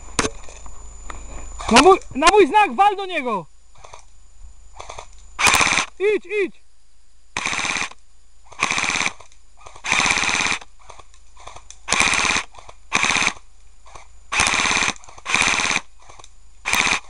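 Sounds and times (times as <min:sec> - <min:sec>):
airsoft gun automatic bursts: 0:04.8 - 0:05.9, 0:07.4 - 0:17.0.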